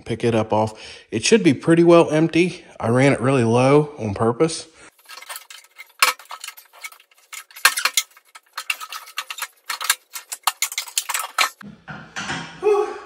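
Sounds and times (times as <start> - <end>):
metal clinking and clanking: 4.9 - 11.6.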